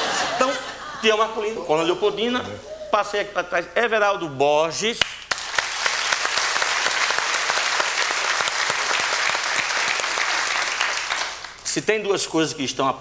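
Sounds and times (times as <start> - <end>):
audience applauding: 5.3 - 11.6.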